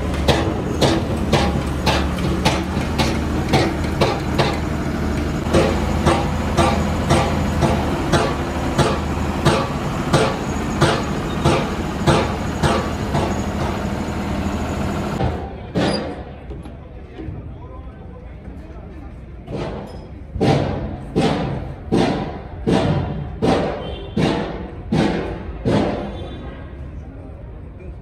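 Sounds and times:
hammer striking metal: 0:00.0 - 0:14.2, 0:19.5 - 0:26.2
engine humming: 0:00.0 - 0:15.5.

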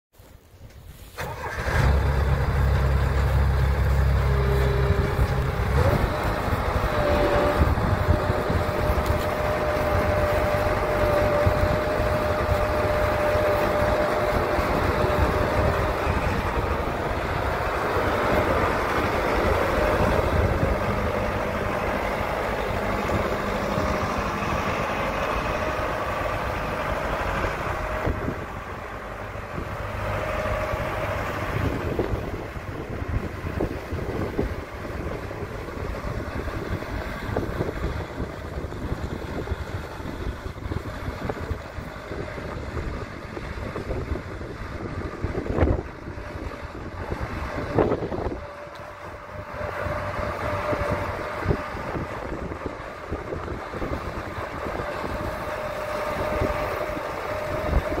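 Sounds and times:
sprayer engine running: 0:03.1 - 0:44.2.

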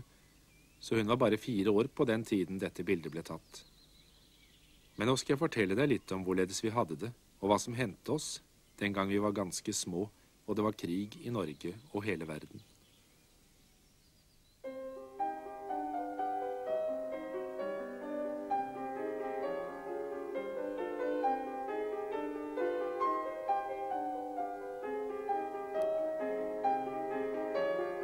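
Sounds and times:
piano music: 0:14.6 - 0:28.0.

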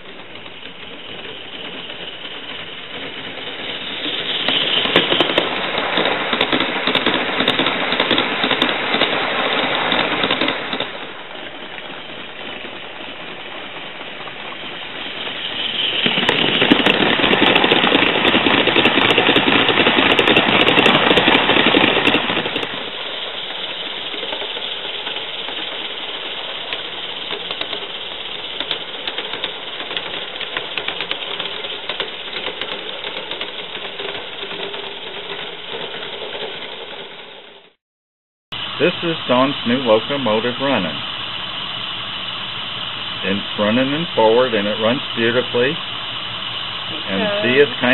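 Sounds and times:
model train wheels clattering on track: 0:00.0 - 0:37.7.

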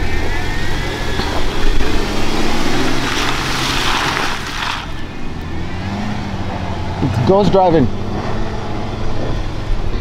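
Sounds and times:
rush of noise: 0:00.0 - 0:07.0
engine pulling under load: 0:00.0 - 0:10.0.

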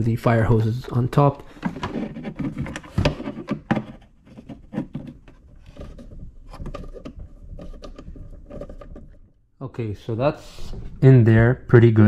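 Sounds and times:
rubbing: 0:01.5 - 0:09.4.

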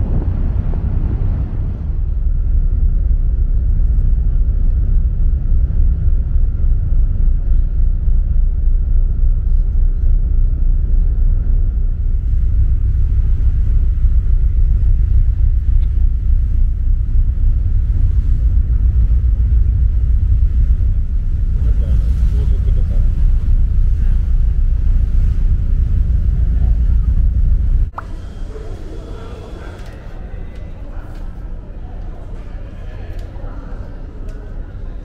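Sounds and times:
wind buffeting microphone: 0:00.0 - 0:28.0
ship engines droning: 0:00.0 - 0:35.0.

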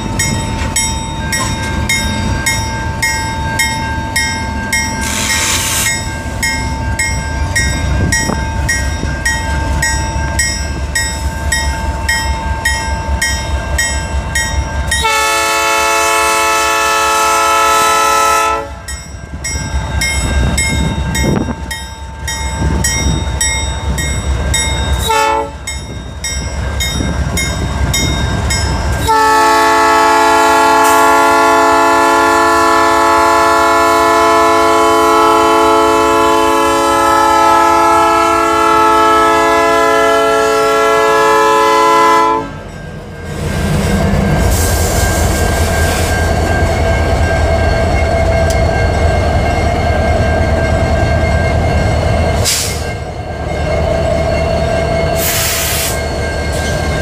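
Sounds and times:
diesel locomotive engines rumbling: 0:00.0 - 0:57.0
train air horn blasts: 0:15.0 - 0:18.9, 0:25.0 - 0:25.7, 0:29.0 - 0:42.7.

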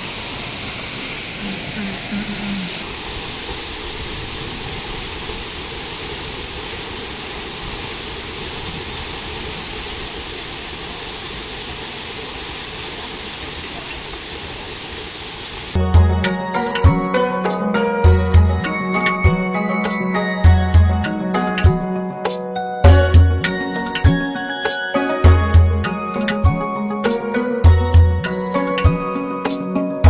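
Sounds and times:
waterfall rushing: 0:00.0 - 0:15.8.

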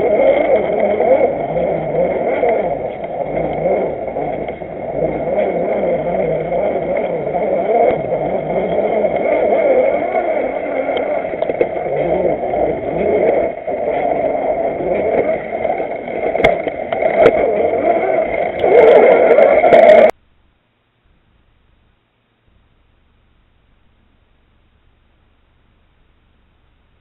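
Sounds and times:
toy car motor and gear whine: 0:00.0 - 0:20.1.

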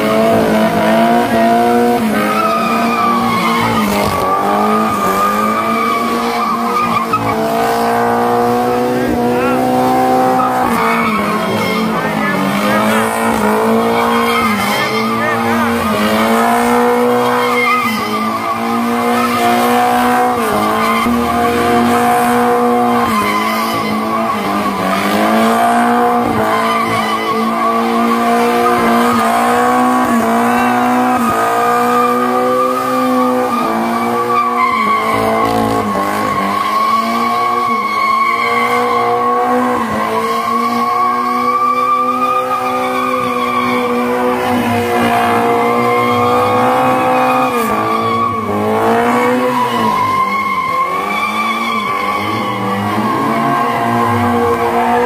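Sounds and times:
car engine revving: 0:00.0 - 0:55.0
tyres squealing: 0:00.0 - 0:55.0.

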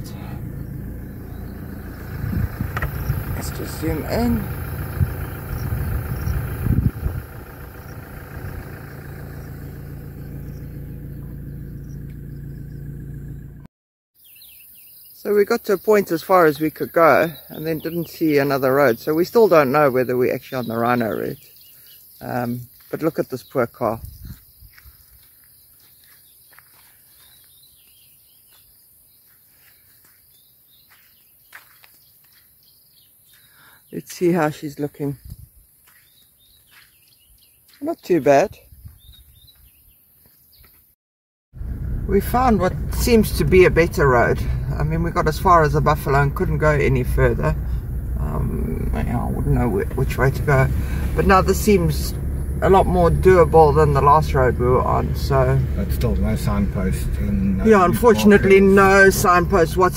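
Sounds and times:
soft bird chirps: 0:00.0 - 0:06.6, 0:07.4 - 0:13.6, 0:14.2 - 0:41.0
low thumps: 0:00.0 - 0:12.2
engine idling from inside cabin: 0:00.0 - 0:13.7, 0:41.6 - 0:59.9.

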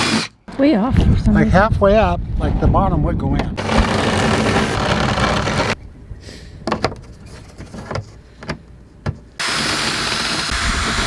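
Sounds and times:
drill sanding sheet metal: 0:03.6 - 0:05.8, 0:09.4 - 0:11.0.

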